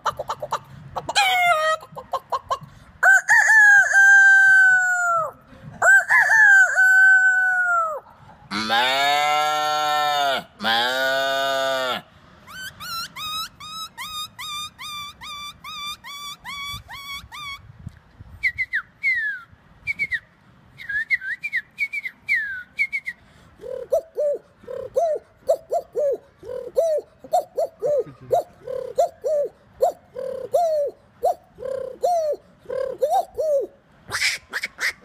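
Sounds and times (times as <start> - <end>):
man imitating pigeon coos: 0.0 - 2.6, 3.3 - 8.8, 23.6 - 35.0
falling whistles: 18.4 - 23.2
man whistling bird chirps: 18.4 - 23.2.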